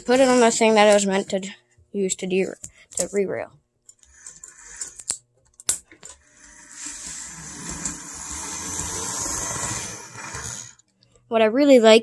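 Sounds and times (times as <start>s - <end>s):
model train motor whirring: 4.1s - 5.1s, 6.2s - 10.8s.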